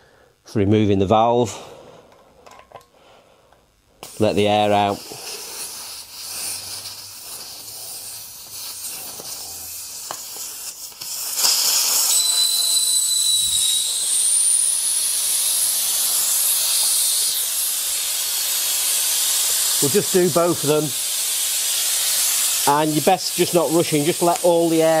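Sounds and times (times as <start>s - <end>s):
air hissing from tyre valve: 4.0s - 25.0s
thin whistle: 11.0s - 19.7s.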